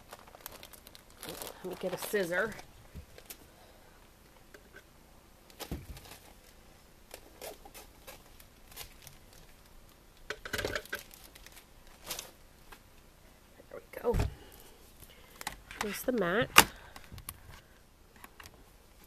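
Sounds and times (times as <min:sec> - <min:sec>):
plastic packaging rustling: 0:00.0 - 0:03.5, 0:05.5 - 0:12.7.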